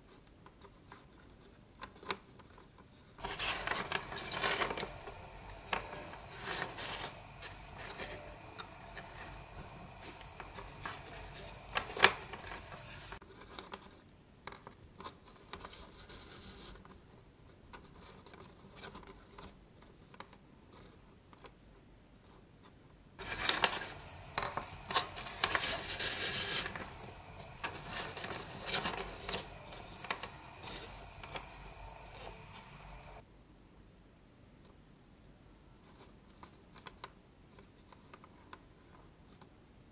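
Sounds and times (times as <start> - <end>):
cardboard and string rubbing: 3.2 - 13.8, 23.2 - 33.2.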